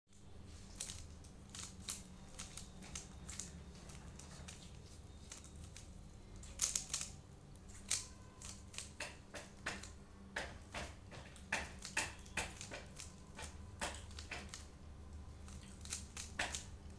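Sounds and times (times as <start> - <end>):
puzzle cube clicking: 0.8 - 7.2, 7.8 - 10.0, 11.4 - 14.7, 15.5 - 16.7.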